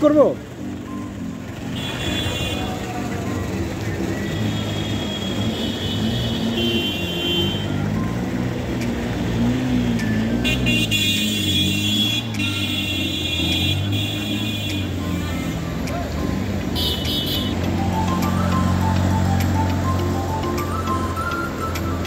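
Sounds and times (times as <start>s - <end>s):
vehicle engines running: 0.0s - 22.0s.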